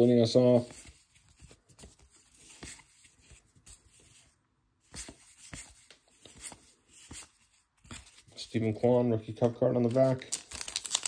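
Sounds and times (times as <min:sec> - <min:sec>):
trading cards tapping and sliding: 0:00.5 - 0:08.7.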